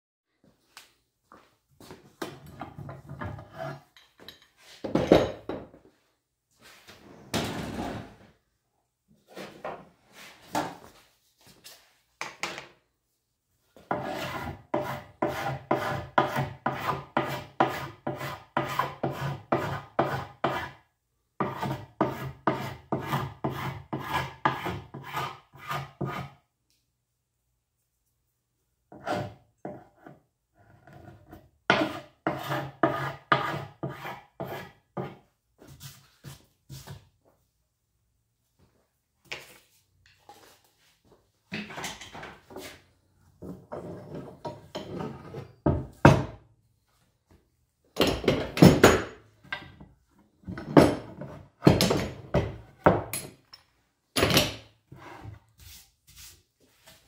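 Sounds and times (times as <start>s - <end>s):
hand scraper scraping wood: 13.8s - 20.8s, 21.4s - 26.4s, 28.9s - 35.2s.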